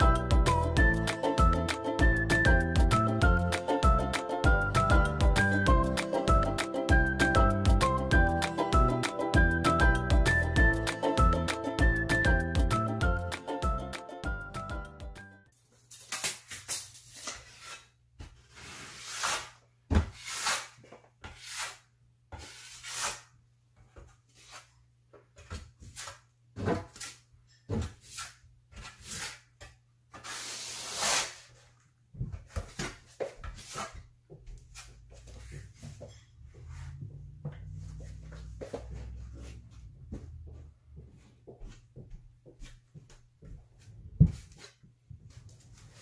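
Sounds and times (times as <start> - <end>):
trowel scraping adhesive on wall: 17.1 - 23.4, 30.2 - 31.5.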